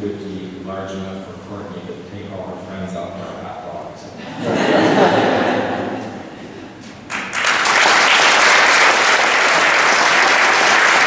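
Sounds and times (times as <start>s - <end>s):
audience applauding: 6.8s - 11.0s.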